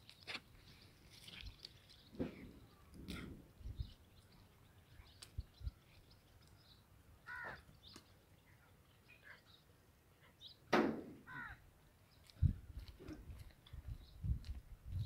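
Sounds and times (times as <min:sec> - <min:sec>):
small birds chirping: 0:00.0 - 0:10.7, 0:11.3 - 0:15.0
crow cawing: 0:07.2 - 0:07.6, 0:11.2 - 0:11.6.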